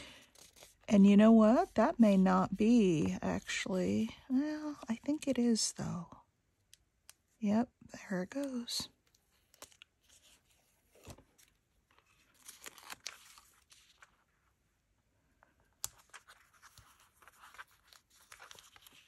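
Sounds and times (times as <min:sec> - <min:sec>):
paper rustling and crinkling: 0:00.0 - 0:05.0, 0:09.2 - 0:14.5, 0:15.5 - 0:19.0.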